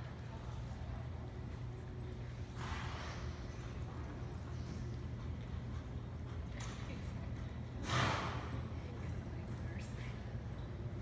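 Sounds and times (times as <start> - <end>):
horse hoofbeats on dirt: 1.4 - 8.8.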